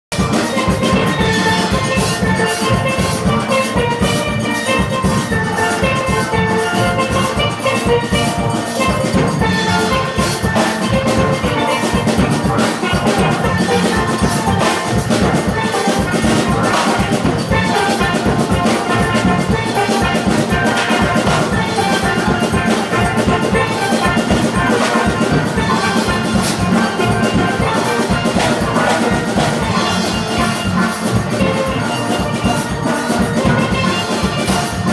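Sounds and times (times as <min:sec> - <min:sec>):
drums keeping a beat: 0:00.1 - 0:34.9
steelpans playing: 0:00.2 - 0:34.9.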